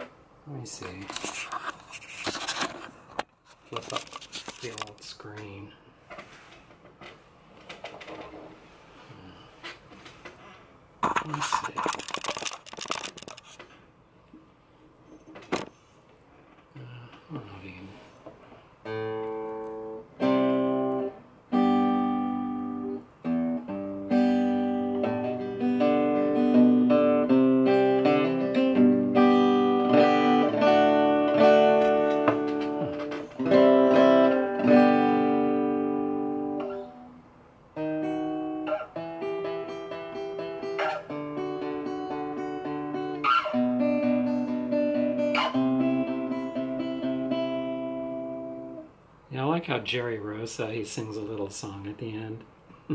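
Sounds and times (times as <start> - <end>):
fingerstyle acoustic guitar: 18.8 - 37.1, 37.8 - 48.9.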